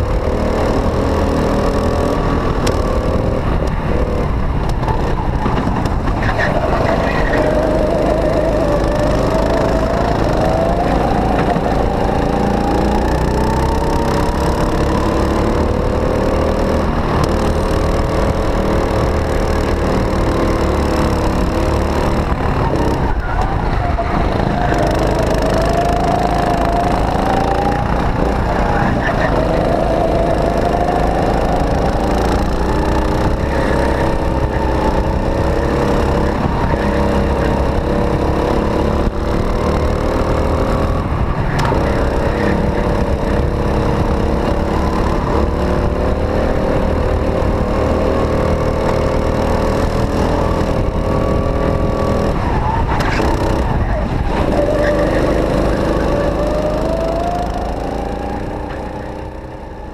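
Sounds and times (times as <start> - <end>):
go-kart engine: 0.0 - 59.9
wind rumble: 0.0 - 59.9.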